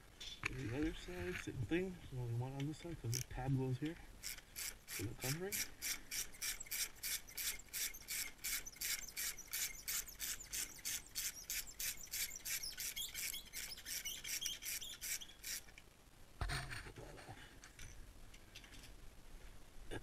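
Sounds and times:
ratchet wrench clicking: 4.2s - 15.7s.

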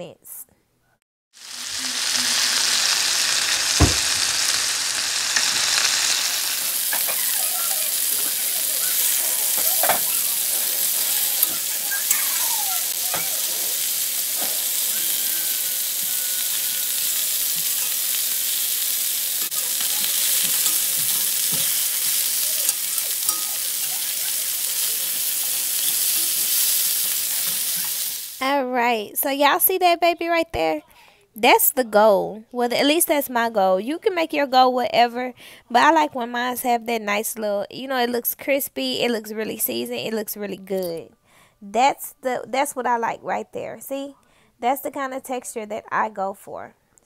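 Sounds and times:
chicken sizzling in a skillet: 1.4s - 28.4s.

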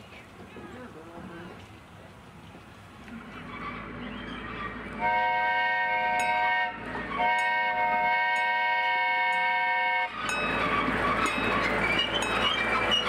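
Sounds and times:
train approaching: 0.0s - 13.0s
train whistle blasts: 5.0s - 10.2s.

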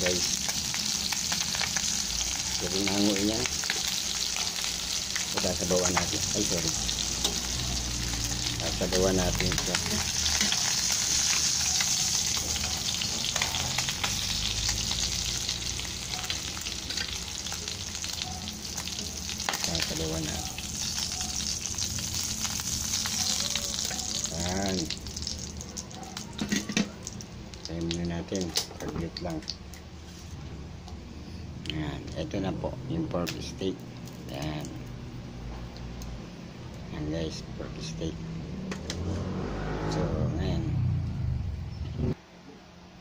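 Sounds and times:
meat sizzling in hot oil: 0.0s - 28.6s.

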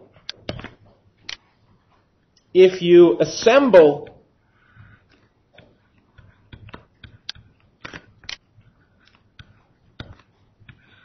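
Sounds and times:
stylus tapping on screen: 4.8s - 11.0s.

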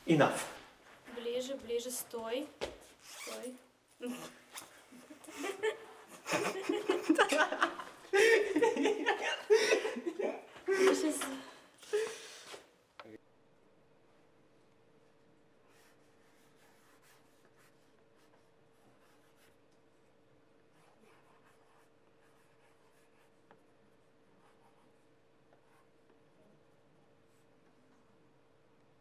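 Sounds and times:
faint steady hum: 3.6s - 29.0s
stylus scratching on tablet: 15.6s - 26.0s.

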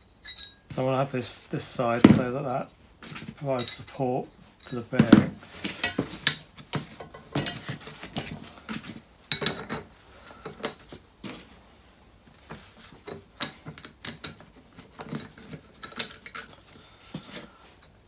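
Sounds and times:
light metal clinks and knocks: 3.3s - 10.8s, 12.5s - 16.8s.

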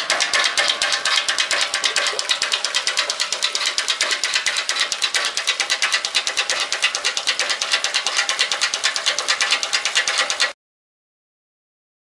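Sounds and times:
diaphragm pump clattering: 0.0s - 10.6s.

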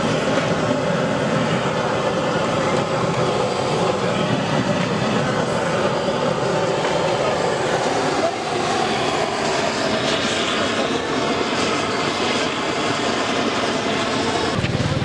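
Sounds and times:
steady traffic: 0.0s - 15.0s
voices: 2.0s - 12.9s.

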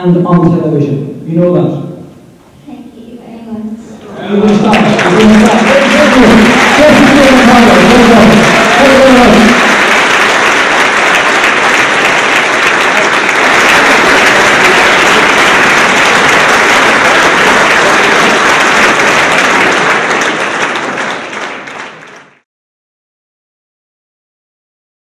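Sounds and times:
audience applauding: 4.0s - 22.4s.

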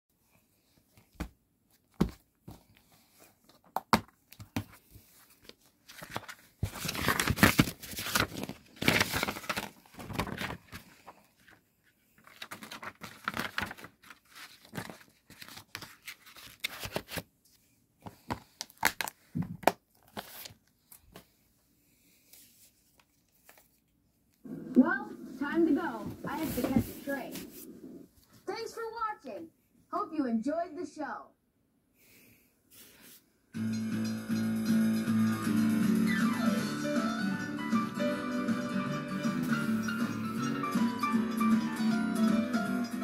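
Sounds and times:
plastic rustling and crinkling: 1.8s - 17.3s.

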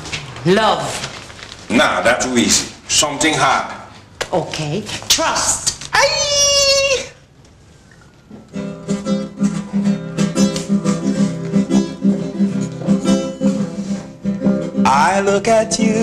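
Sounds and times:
acoustic guitar strumming: 8.5s - 16.0s.

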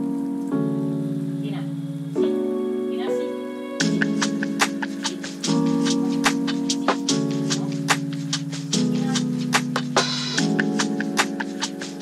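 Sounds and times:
held synth chords: 0.0s - 12.0s
quick ticking beat: 3.8s - 12.0s.

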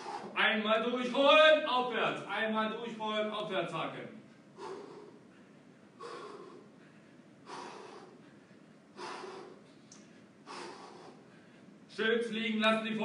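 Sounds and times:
man breathing hard: 0.0s - 0.4s, 4.5s - 11.9s.

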